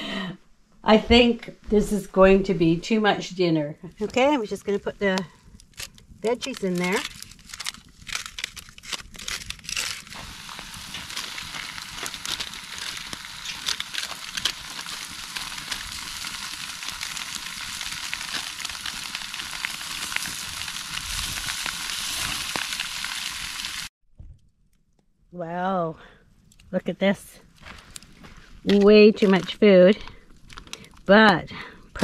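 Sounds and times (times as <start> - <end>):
campfire crackling: 3.8 - 25.0, 26.0 - 32.0
aluminium foil crinkling: 4.0 - 23.9, 27.6 - 32.0
meat sizzling on a grill: 10.0 - 23.9.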